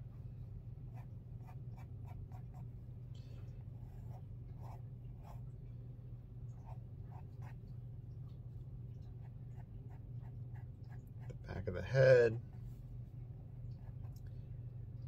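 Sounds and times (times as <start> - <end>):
steady low hum: 0.0 - 15.0
pen scratching on paper: 3.8 - 5.4.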